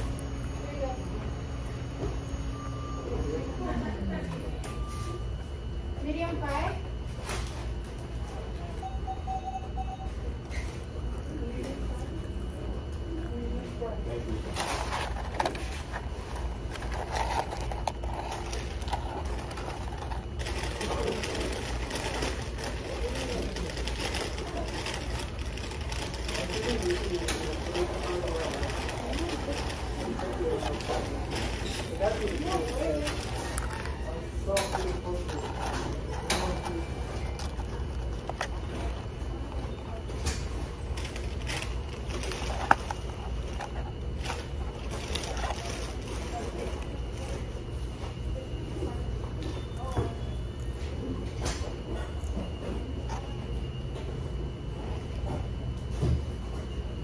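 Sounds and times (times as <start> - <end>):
restaurant hum: 0.0 - 57.0
faint voices: 8.0 - 53.5
paper carton rustling: 14.5 - 34.0
person eating fries: 14.5 - 34.2.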